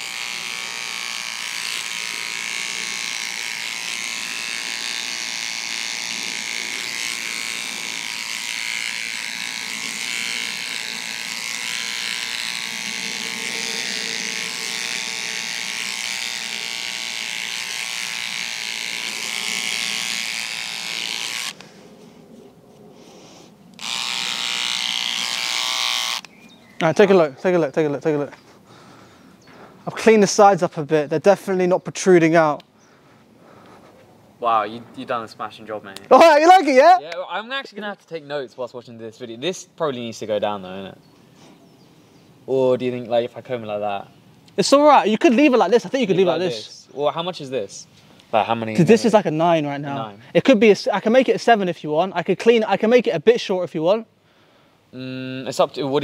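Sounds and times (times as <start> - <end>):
electric beard trimmer buzzing: 0.0 - 21.7, 23.8 - 26.3.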